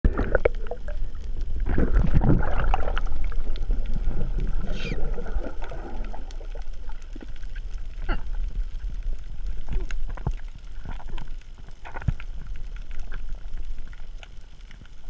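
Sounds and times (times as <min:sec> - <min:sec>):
low underwater rumble: 0:00.0 - 0:15.0
swell of water noise: 0:00.0 - 0:15.0
sharp clicks and crackles: 0:00.1 - 0:15.0
short falling squeal: 0:04.7 - 0:05.0.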